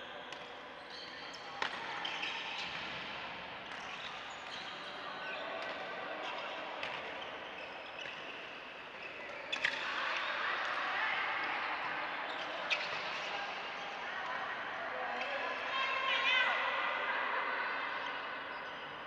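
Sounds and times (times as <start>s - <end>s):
shoes squeaking on court: 3.7s - 4.8s, 5.5s - 8.3s, 9.0s - 9.9s.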